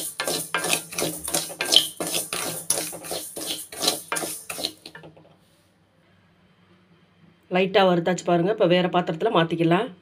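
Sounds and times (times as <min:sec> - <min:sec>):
spatula scraping rice in a pan: 0:00.0 - 0:05.0.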